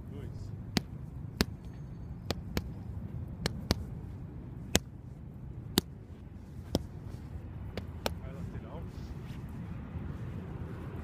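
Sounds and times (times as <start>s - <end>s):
low background rumble: 0.0s - 11.0s.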